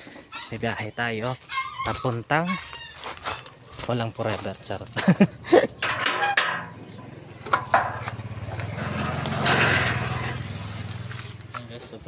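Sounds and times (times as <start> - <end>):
metal gate clanking: 5.8 - 10.9
small engine running: 6.8 - 11.9.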